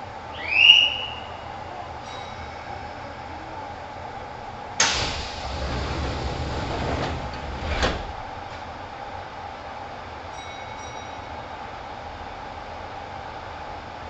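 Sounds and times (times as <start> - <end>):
train car hum: 0.0 - 14.0
train doors sliding rumble: 4.2 - 9.3
train doors banging shut: 4.8 - 9.0.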